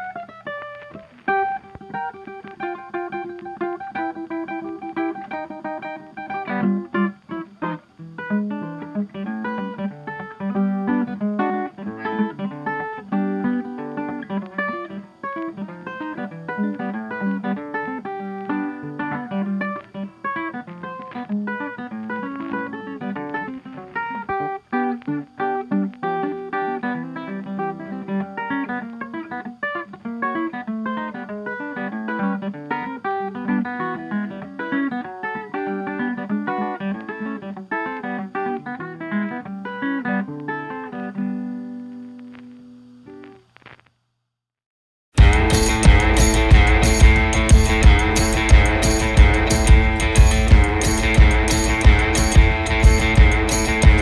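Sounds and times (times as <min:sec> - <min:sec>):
plucked acoustic guitar: 0:00.0 - 0:42.4, 0:45.2 - 0:54.0.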